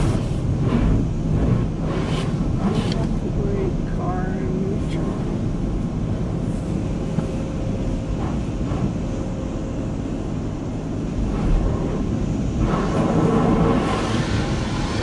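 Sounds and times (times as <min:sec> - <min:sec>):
water spray on car: 0:00.0 - 0:03.5, 0:12.6 - 0:15.0
car wash machinery hum: 0:00.0 - 0:15.0.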